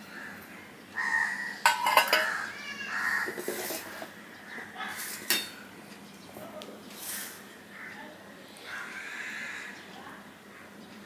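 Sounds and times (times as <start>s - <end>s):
spoon and bowls clinking: 1.6s - 2.4s, 5.2s - 5.6s.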